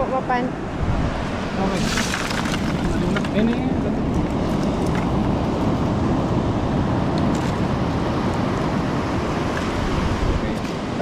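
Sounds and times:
ocean surf breaking: 0:00.0 - 0:11.0
wind buffeting microphone: 0:00.0 - 0:11.0.

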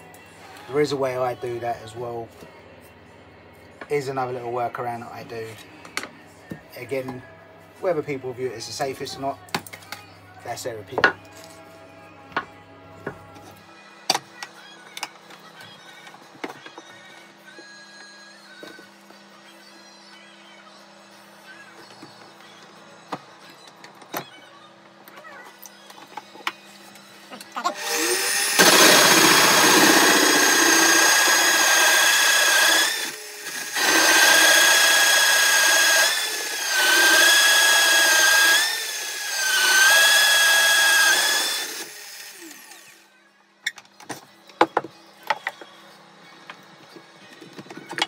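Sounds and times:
pillar drill cutting wood: 0:27.7 - 0:43.0.

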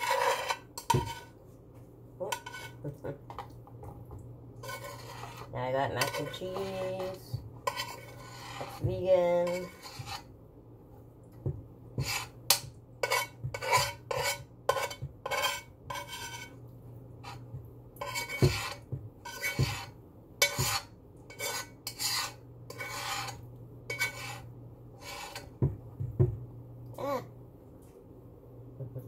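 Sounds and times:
utensil scraping a dish: 0:00.0 - 0:01.4, 0:02.2 - 0:03.5, 0:04.6 - 0:10.3, 0:12.0 - 0:16.6, 0:17.2 - 0:25.7
steady low hum: 0:00.0 - 0:29.0.

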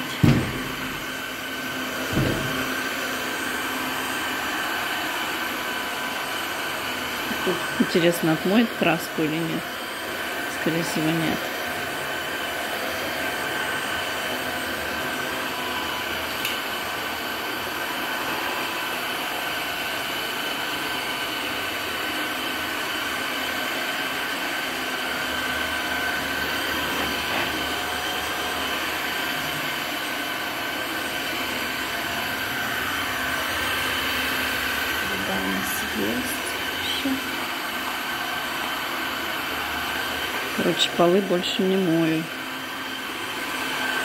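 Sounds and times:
floor washer suction motor whine: 0:00.0 - 0:44.0.

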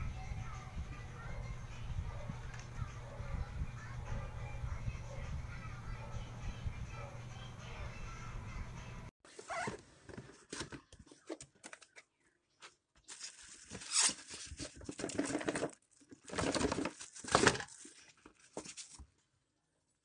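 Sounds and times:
cardboard and plastic rustling: 0:09.3 - 0:19.2.

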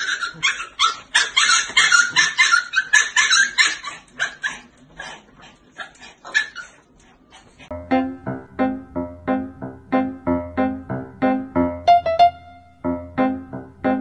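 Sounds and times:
dogs whining and yipping: 0:00.0 - 0:07.0.

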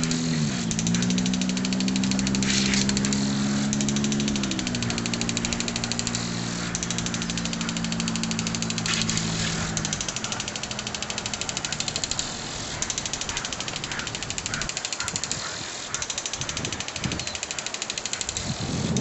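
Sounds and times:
low engine hum: 0:00.0 - 0:14.7
lawn sprinkler ticking: 0:00.0 - 0:19.0.

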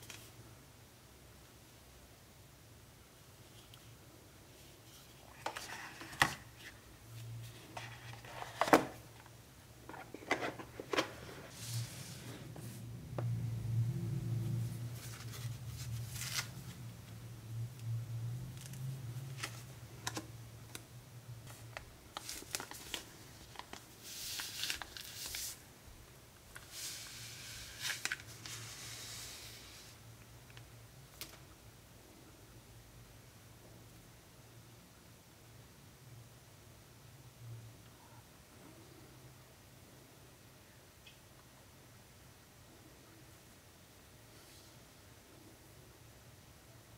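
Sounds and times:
steady low hum: 0:10.5 - 0:22.0
packaging rustling: 0:21.5 - 0:25.6.

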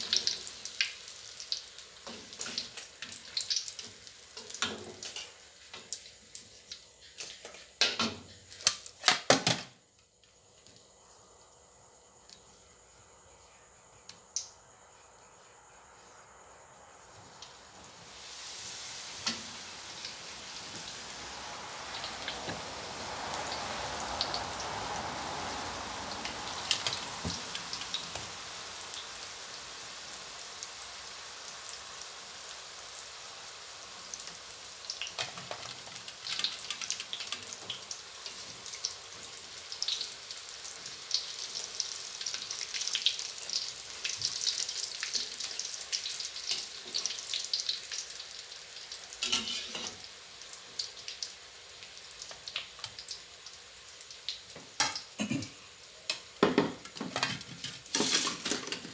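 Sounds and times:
oil crackling and popping: 0:00.0 - 0:10.9, 0:17.4 - 0:58.9
food deep-frying in hot oil: 0:00.0 - 0:58.9
spatula turning food in oil: 0:48.8 - 0:50.1.

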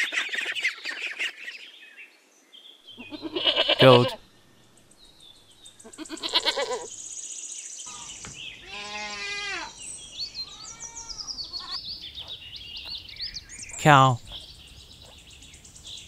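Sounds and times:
faint high chirping: 0:02.9 - 0:16.0
goats bleating: 0:03.0 - 0:04.2, 0:05.9 - 0:06.9, 0:08.6 - 0:09.8, 0:10.5 - 0:11.8.

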